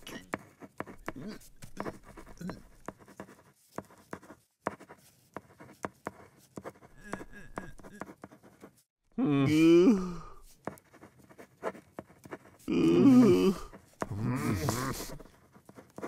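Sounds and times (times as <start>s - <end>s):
brush scratching on paper: 0.0s - 8.9s, 10.5s - 12.7s, 13.6s - 16.0s.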